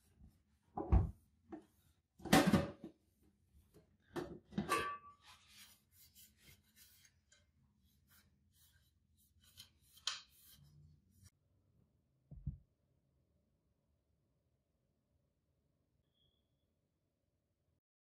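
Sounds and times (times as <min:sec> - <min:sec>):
small scrape: 0:05.2 - 0:07.3.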